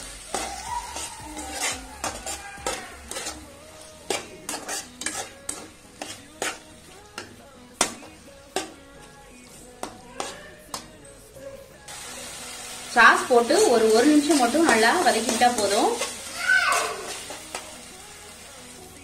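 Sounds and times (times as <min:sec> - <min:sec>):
spatula scraping and tapping pan: 0:00.2 - 0:09.2, 0:09.8 - 0:11.0, 0:13.6 - 0:17.8.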